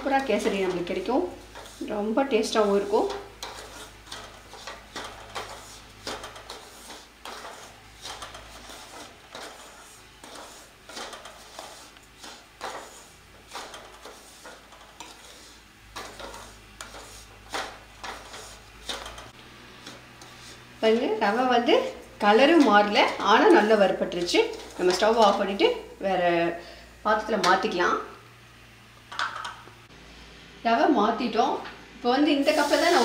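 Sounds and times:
wooden spatula scraping a pan: 0:00.0 - 0:25.8, 0:32.4 - 0:33.0.

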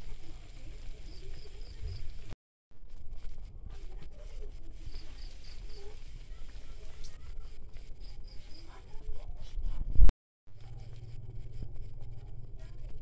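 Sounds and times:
soup bubbling at a rolling boil: 0:00.0 - 0:03.0.

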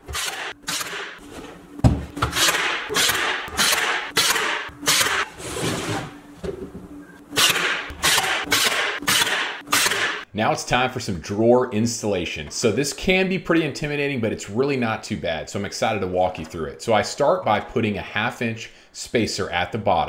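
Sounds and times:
brad nailer firing into wood: 0:00.0 - 0:01.2, 0:01.9 - 0:05.3, 0:07.4 - 0:10.2.

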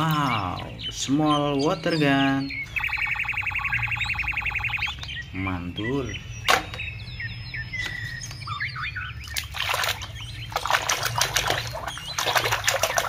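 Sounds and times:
high bird-like chirps: 0:00.0 - 0:13.0
hand splashing in muddy water: 0:09.3 - 0:13.0.

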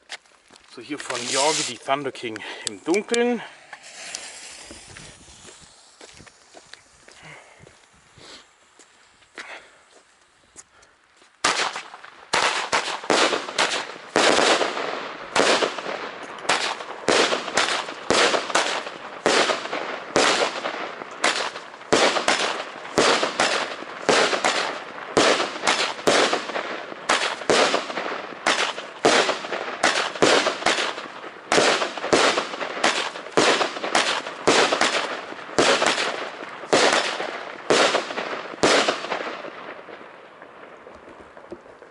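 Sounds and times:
firework battery bangs: 0:02.8 - 0:06.6, 0:11.4 - 0:39.9.

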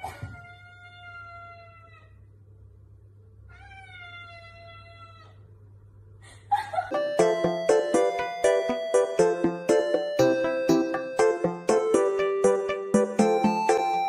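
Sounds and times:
cat meowing: 0:00.0 - 0:02.2, 0:03.5 - 0:05.4.

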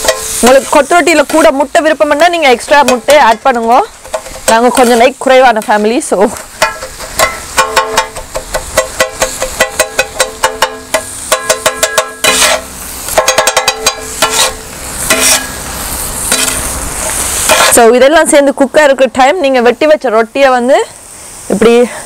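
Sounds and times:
metal blades clanging on griddle: 0:00.0 - 0:01.5, 0:02.5 - 0:05.0, 0:06.6 - 0:18.0
frying food sizzling: 0:00.0 - 0:22.0.

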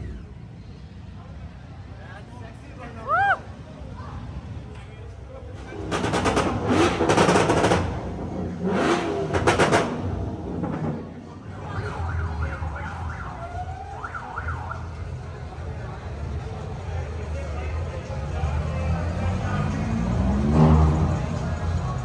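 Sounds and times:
vehicle engine revving: 0:05.6 - 0:12.9, 0:18.1 - 0:22.0.

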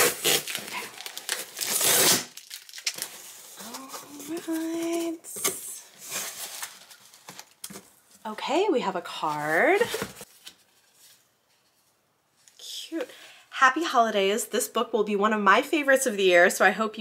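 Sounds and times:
cardboard box tearing: 0:00.0 - 0:06.8
cardboard rustling: 0:00.0 - 0:08.3, 0:09.1 - 0:11.9.

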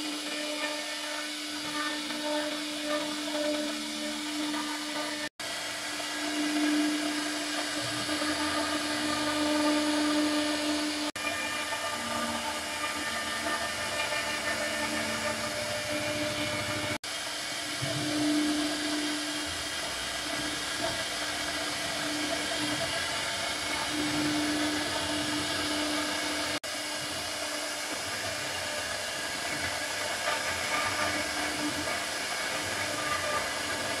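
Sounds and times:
router bit cutting wood: 0:00.0 - 0:34.0
router motor whine: 0:00.0 - 0:34.0.

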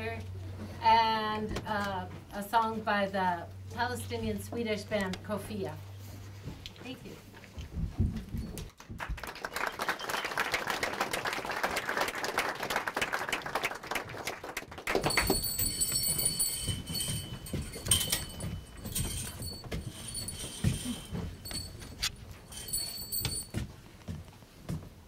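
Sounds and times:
audience applauding: 0:08.9 - 0:15.4
curtain rings jangling and scraping: 0:14.9 - 0:23.6.

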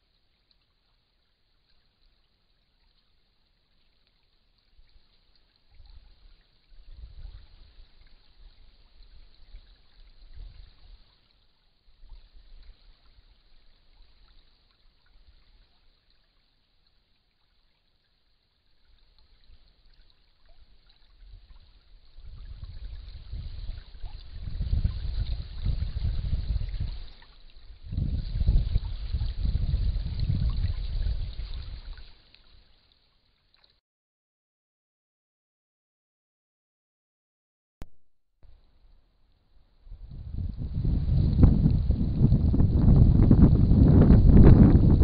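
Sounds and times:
faint microphone hiss: 0:00.0 - 0:33.7.

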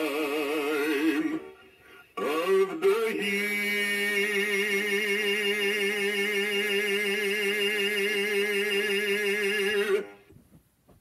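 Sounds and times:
recorded man singing long note: 0:00.0 - 0:10.2.

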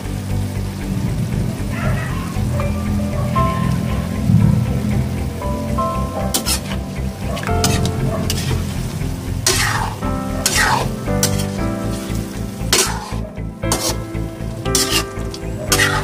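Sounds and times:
background music with beat: 0:00.0 - 0:16.0
meat sizzling: 0:00.0 - 0:16.0
metal spatula scraping wok: 0:06.2 - 0:16.0.

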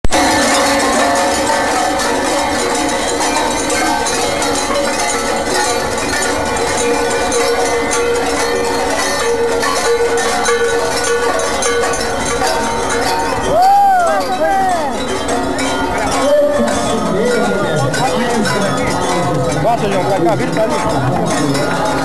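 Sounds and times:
held tone: 0:00.0 - 0:14.4
metal bell struck rhythmically: 0:00.0 - 0:22.0
street percussion: 0:00.0 - 0:22.0.

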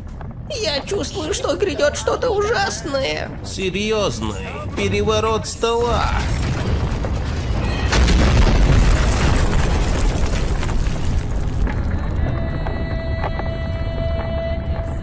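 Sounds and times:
heavy booming rumble: 0:00.0 - 0:15.0.

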